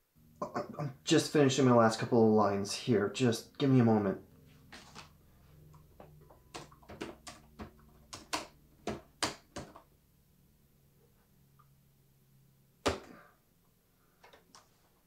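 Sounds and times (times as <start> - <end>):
laptop keyboard typing: 5.7 - 9.9.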